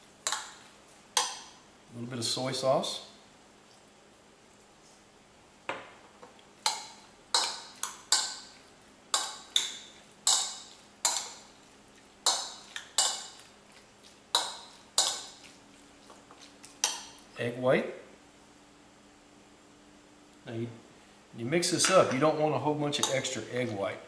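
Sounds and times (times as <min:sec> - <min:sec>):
metal spoon clinking ceramic bowl: 0:23.0 - 0:23.3.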